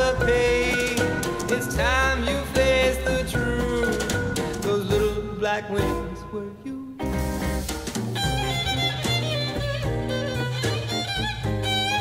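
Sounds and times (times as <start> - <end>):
band playing: 0.0 - 12.0.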